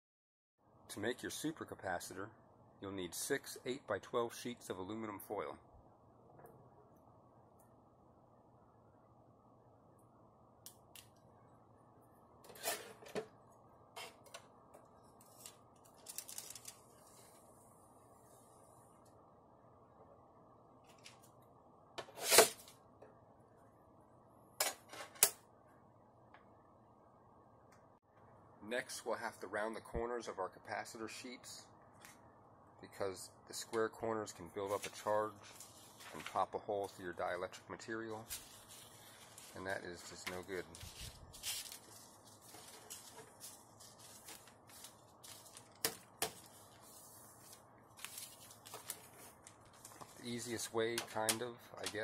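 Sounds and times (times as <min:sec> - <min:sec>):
foil rustling: 0:15.2 - 0:17.4, 0:38.2 - 0:50.6.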